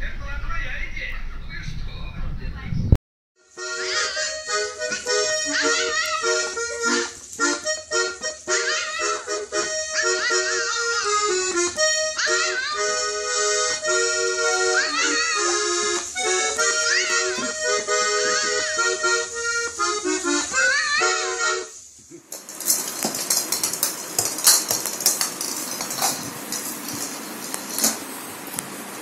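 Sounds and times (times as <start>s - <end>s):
accordion playing: 3.4s - 21.8s
puppy howling: 5.4s - 6.4s, 14.4s - 15.6s.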